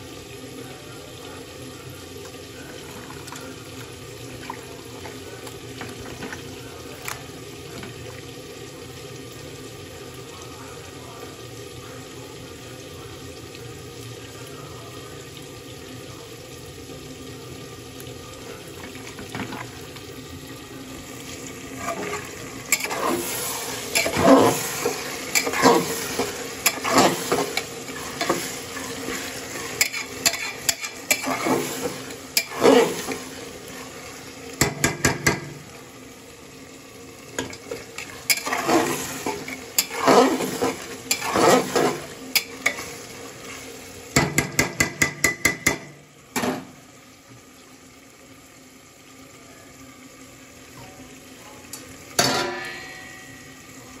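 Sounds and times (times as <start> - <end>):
onions sizzling in oil: 0.0 - 54.0
metal spoon stirring and scraping: 21.7 - 33.2, 37.4 - 43.0.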